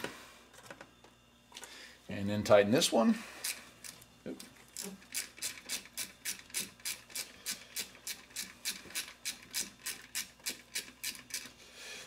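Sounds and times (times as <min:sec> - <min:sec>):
ratchet wrench clicking: 0:04.8 - 0:11.5.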